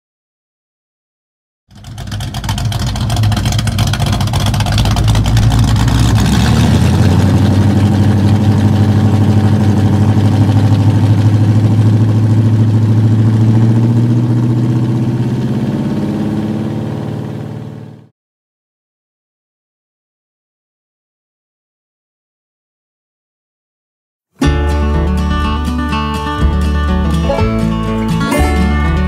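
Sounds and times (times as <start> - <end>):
loud engine running: 1.7 - 18.1, 24.7 - 29.0.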